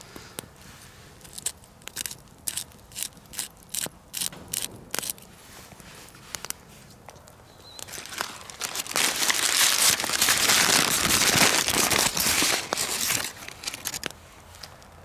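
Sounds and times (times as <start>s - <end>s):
campfire crackles: 0.0s - 15.0s.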